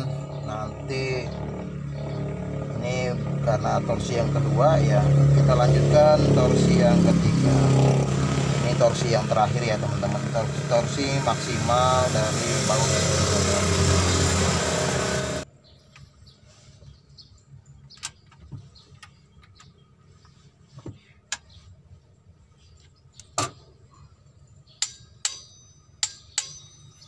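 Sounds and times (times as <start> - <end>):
loud noise: 9.8 - 15.4.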